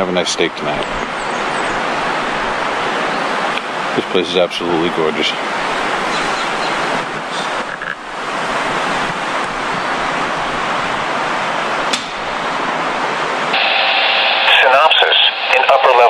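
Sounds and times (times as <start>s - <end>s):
river water rushing: 0.5s - 14.0s.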